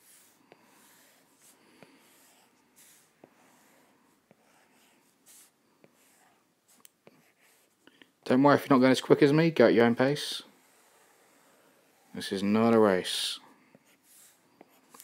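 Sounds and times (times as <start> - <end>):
soft breathing: 0.0 - 8.2, 13.4 - 15.0.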